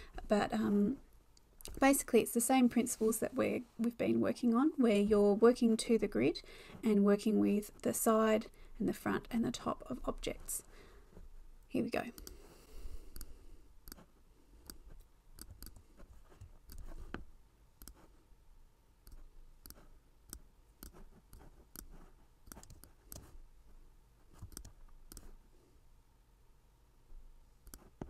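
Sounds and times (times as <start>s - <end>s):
computer mouse clicking: 12.1s - 12.5s, 13.1s - 18.1s, 19.0s - 23.4s, 24.4s - 25.4s, 27.6s - 28.0s.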